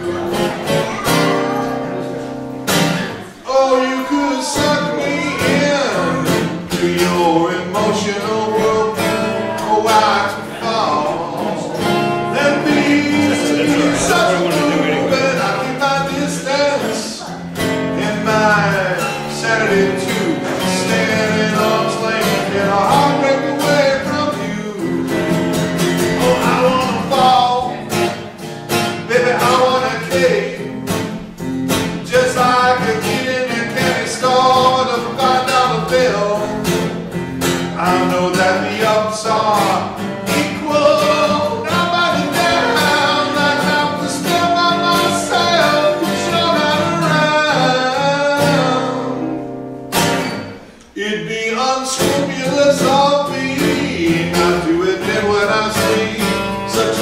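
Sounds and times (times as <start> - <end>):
man singing: 0.0 - 2.1, 2.7 - 57.0
acoustic guitar strumming: 0.0 - 57.0.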